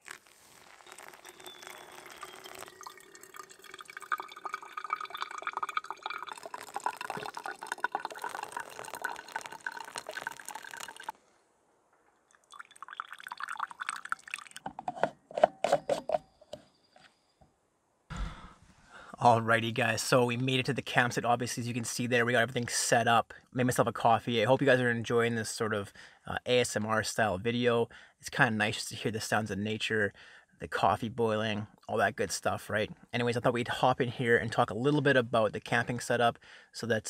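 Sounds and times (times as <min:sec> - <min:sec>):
water trickling onto coffee grounds: 0:00.0 - 0:11.1, 0:12.4 - 0:14.6.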